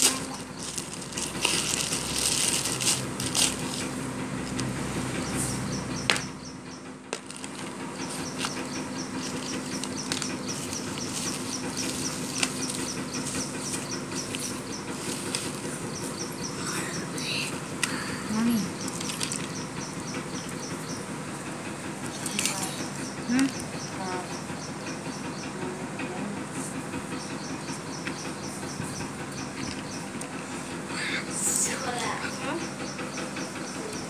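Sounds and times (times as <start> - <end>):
plastic packaging crinkling: 0.0 - 4.7, 7.2 - 13.0, 18.9 - 19.6.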